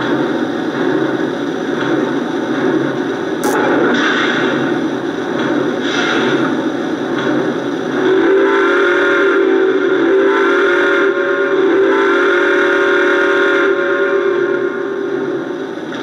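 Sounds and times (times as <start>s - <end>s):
model train steam whistle: 8.0s - 15.2s.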